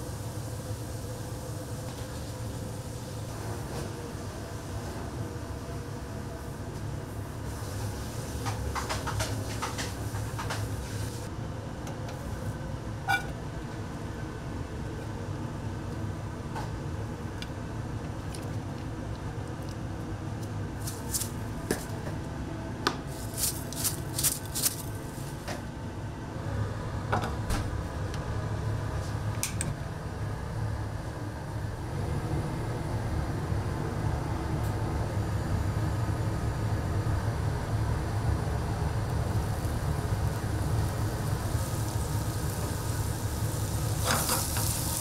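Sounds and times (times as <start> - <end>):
steady low hum: 0.0 - 45.0
clatter of metal trays and utensils: 8.4 - 10.8.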